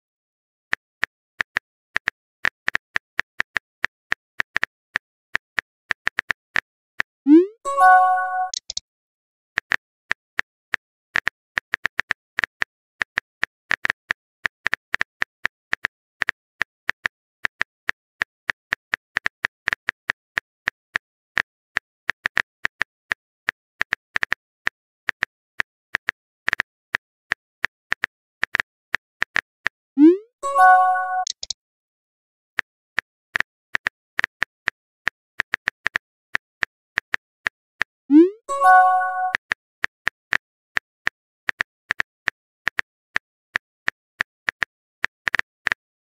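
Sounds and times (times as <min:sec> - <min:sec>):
phone keyboard clicks: 0:07.9 - 0:08.8, 0:30.6 - 0:31.6.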